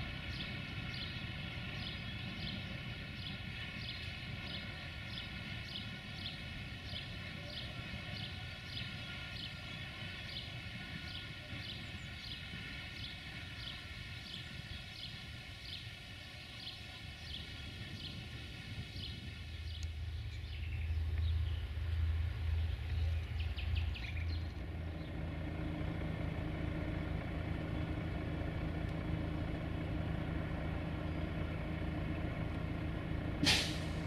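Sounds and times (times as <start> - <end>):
low background rumble: 0.0 - 34.0.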